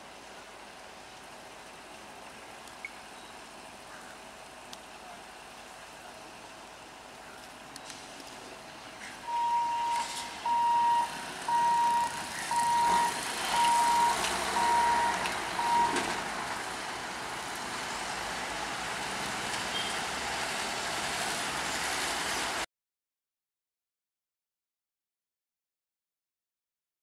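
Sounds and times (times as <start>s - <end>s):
train rumbling: 9.1s - 22.6s
electronic warning beeps: 9.2s - 16.1s.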